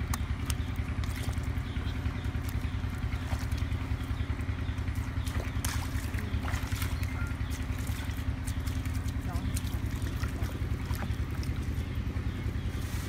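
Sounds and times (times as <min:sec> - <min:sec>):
faint water splashes: 0:00.0 - 0:13.0
motor engine humming: 0:00.0 - 0:13.0.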